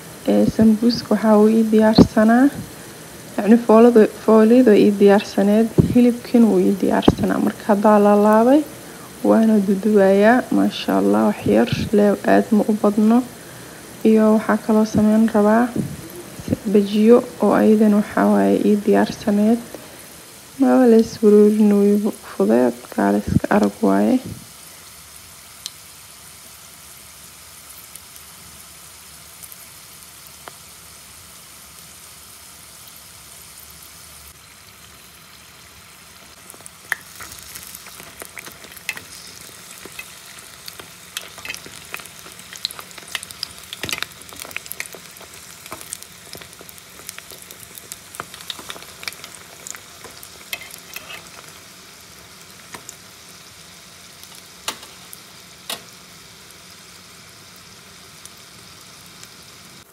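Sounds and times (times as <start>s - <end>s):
deep-frying oil sizzling: 0.0s - 59.9s
sharp crackles and clicks: 25.6s - 25.8s, 36.2s - 53.4s, 54.1s - 56.0s.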